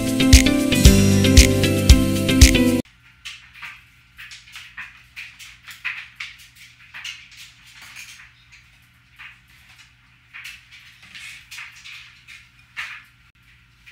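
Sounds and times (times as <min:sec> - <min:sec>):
intro music: 0:00.0 - 0:02.8.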